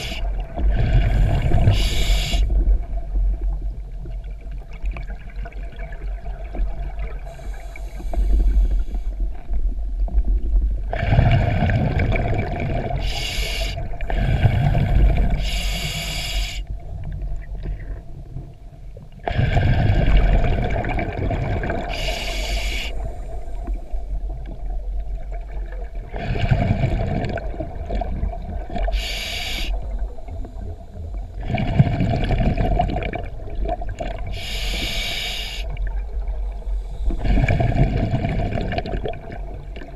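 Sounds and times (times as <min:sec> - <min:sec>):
regulator breathing hiss: 0:01.0 - 0:02.6, 0:07.3 - 0:09.2, 0:13.0 - 0:14.8, 0:15.4 - 0:16.7, 0:21.9 - 0:23.8, 0:28.8 - 0:29.9, 0:34.3 - 0:35.8
bubbling exhalations: 0:37.1 - 0:39.4.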